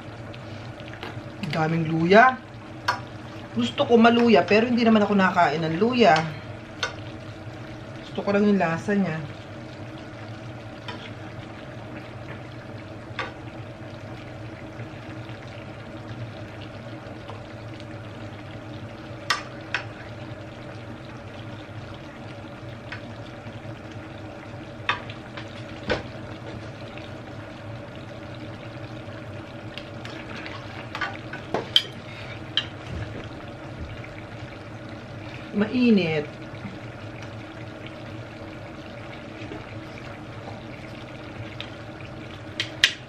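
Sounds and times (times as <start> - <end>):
stew simmering in a pan: 0.0 - 43.0.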